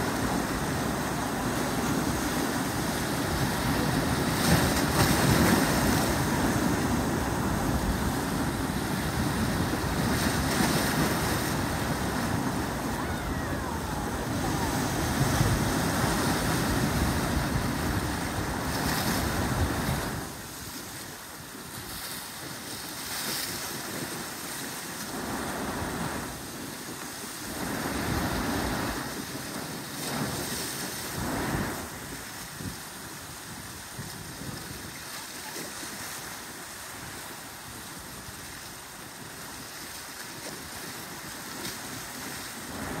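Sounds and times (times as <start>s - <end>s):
water surging through gap: 0.0s - 20.4s
ocean waves breaking on rocks: 0.0s - 43.0s.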